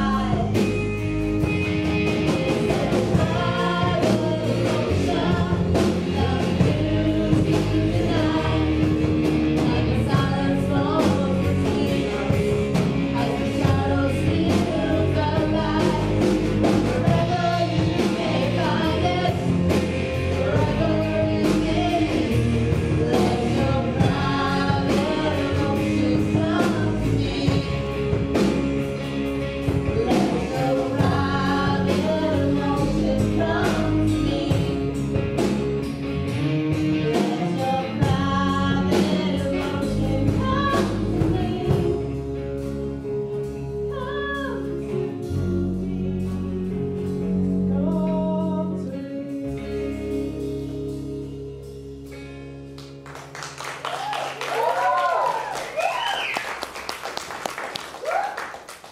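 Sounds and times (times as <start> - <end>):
two women singing: 0.0 - 0.8, 2.0 - 28.6, 29.8 - 35.4, 36.9 - 42.4, 43.9 - 46.2, 47.6 - 51.3
instrumental accompaniment: 0.0 - 57.8.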